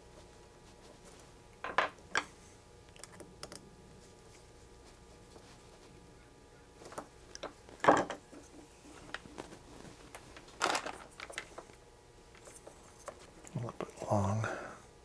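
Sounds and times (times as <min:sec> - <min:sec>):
tools clattering on wooden bench: 0:01.6 - 0:02.3, 0:06.9 - 0:08.4.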